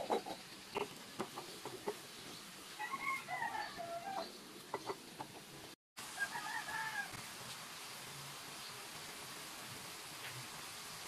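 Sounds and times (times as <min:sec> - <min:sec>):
rooster crowing: 0:02.8 - 0:04.3, 0:06.2 - 0:07.2.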